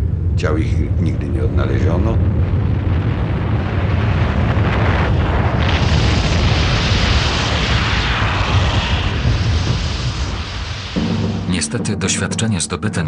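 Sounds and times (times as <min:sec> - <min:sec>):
avalanche rumbling: 0:00.0 - 0:13.0
snow rushing hiss: 0:05.5 - 0:11.5.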